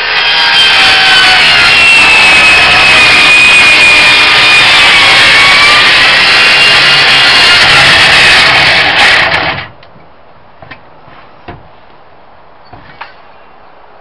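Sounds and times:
circular saw cutting wood: 0.0s - 9.7s.

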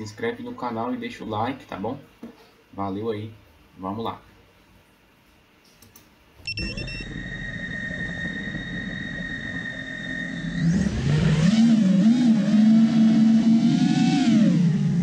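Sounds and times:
quadcopter motors whining: 6.6s - 15.0s.

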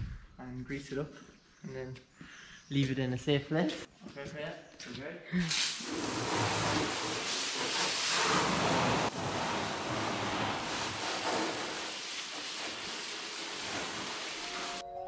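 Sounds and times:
pressure washer jet hissing: 5.5s - 14.8s.

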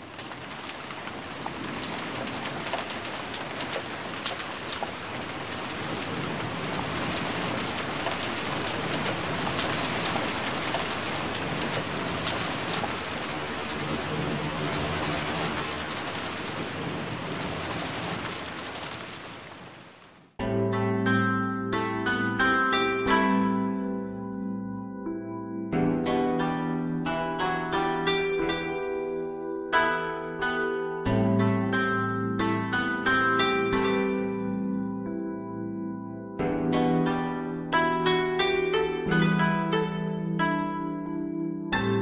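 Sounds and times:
steady rain falling: 0.0s - 20.4s.

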